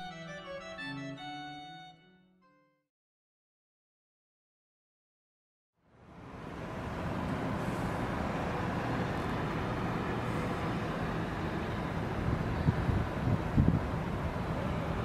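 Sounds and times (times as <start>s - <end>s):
city traffic rumble: 5.8s - 15.0s.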